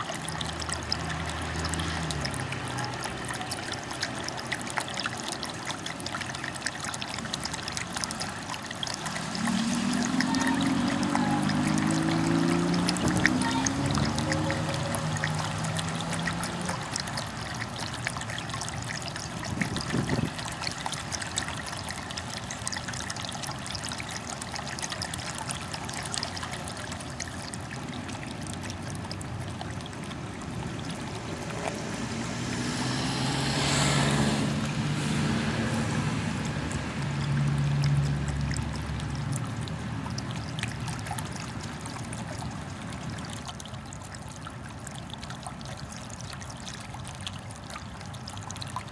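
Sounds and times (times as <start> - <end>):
water trickling: 0.0 - 48.9
vehicle passing: 8.9 - 17.7, 27.6 - 41.1.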